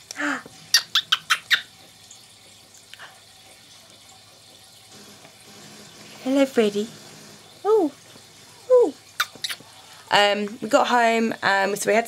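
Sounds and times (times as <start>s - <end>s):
wet kisses: 9.2s - 9.7s.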